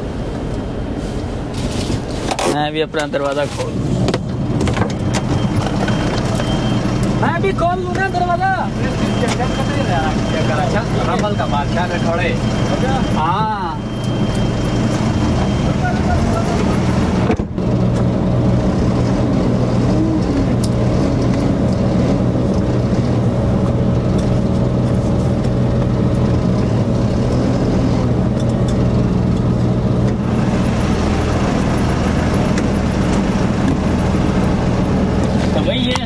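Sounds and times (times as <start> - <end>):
truck diesel engine running: 0.0 - 36.0.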